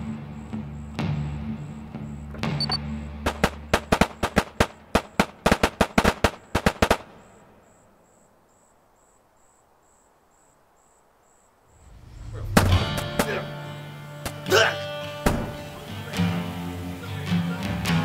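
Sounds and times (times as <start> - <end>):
crickets chirping: 0.0 - 18.0
rapid gunshots: 3.2 - 7.6, 12.4 - 13.6, 15.2 - 15.8.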